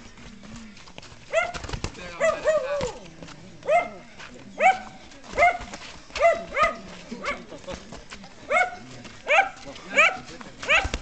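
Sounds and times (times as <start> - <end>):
dog barking: 1.3 - 1.6, 2.2 - 2.9, 3.6 - 4.0, 4.6 - 7.4, 8.5 - 11.0.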